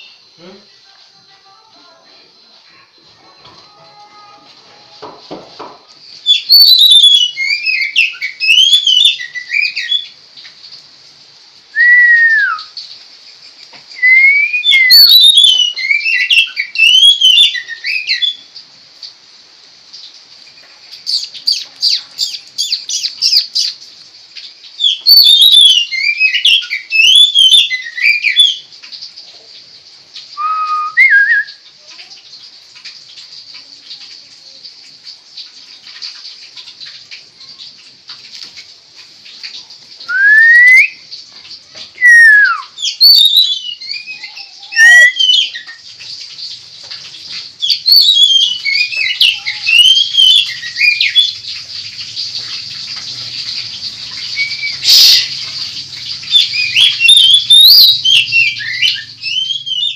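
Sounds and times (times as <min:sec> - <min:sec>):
faint high hiss: 0:00.0 - 0:59.9
bird singing whistled phrases: 0:06.2 - 0:10.1, 0:11.7 - 0:12.8, 0:13.9 - 0:18.5, 0:24.8 - 0:28.6, 0:30.4 - 0:31.6, 0:40.0 - 0:41.0, 0:42.0 - 0:45.8, 0:47.6 - 0:51.4, 0:54.2 - 0:55.4, 0:56.3 - 0:59.9.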